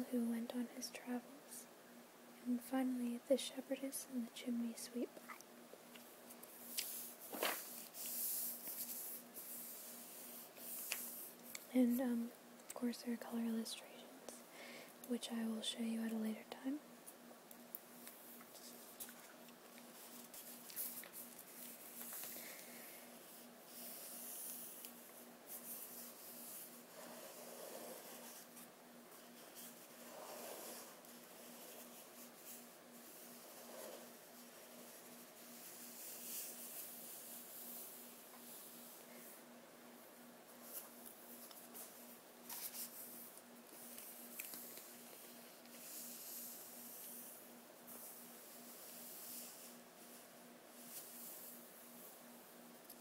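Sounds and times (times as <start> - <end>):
book pages turning: 6.7 - 9.0
soft paper crackles: 18.0 - 39.3, 40.5 - 50.2.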